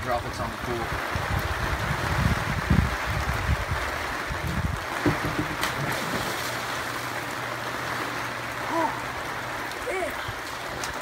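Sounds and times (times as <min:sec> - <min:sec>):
wind rumbling on microphone: 0:00.0 - 0:06.7
heavy rain on pool water: 0:00.0 - 0:11.0
person jumping into pool splash: 0:04.5 - 0:07.3.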